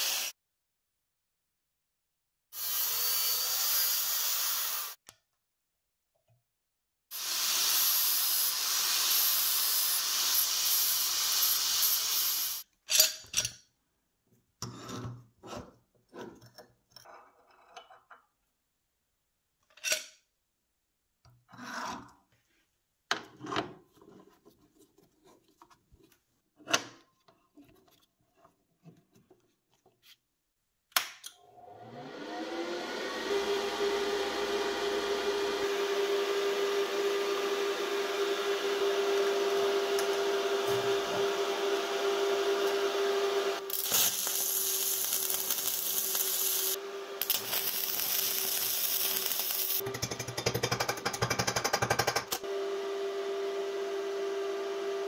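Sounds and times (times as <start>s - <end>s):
angle grinder cutting steel: 0.0s - 0.3s, 2.6s - 5.0s, 7.2s - 12.6s, 32.2s - 50.3s
steel pieces clinking: 43.7s - 49.8s.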